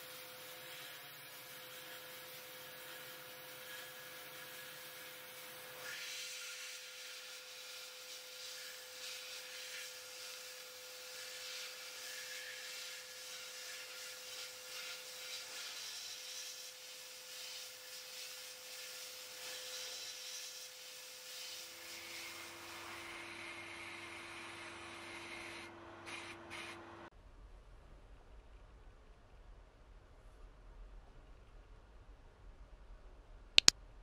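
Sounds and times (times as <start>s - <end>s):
sandblaster nozzle hissing: 0.1s - 26.7s.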